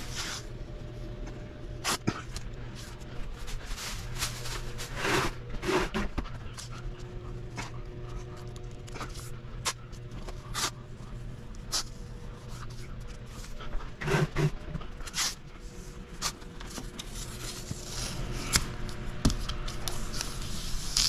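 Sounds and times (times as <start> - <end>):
steady low hum: 0.0 - 21.0
masking tape ripping off roll: 20.1 - 21.0.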